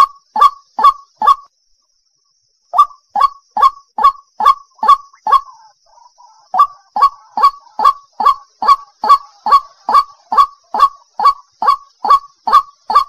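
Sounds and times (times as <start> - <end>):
bird repeating rising call: 2.8 - 13.0.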